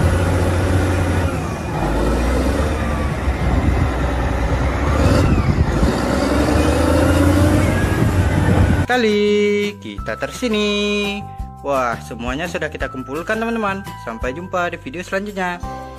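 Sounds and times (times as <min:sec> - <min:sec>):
diesel engine working under load: 0:00.0 - 0:08.9.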